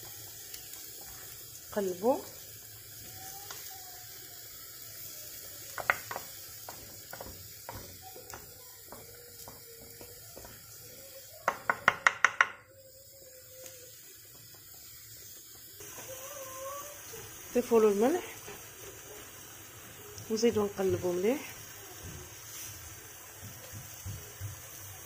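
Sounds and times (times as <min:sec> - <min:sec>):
wooden spoon knocking on earthenware: 0:05.7 - 0:10.7, 0:11.4 - 0:12.6.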